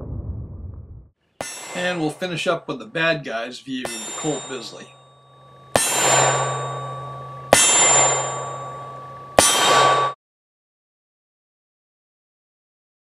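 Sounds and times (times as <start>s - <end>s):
steel target ringing: 1.4s - 10.2s.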